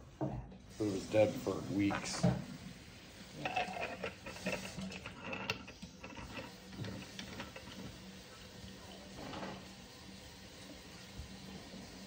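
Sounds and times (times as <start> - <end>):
metal clicks and scrapes: 3.4 - 7.8.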